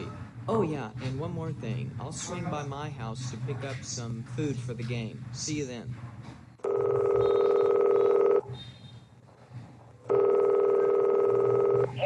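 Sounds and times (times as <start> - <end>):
telephone ringing: 6.6 - 8.6, 10.1 - 12.0.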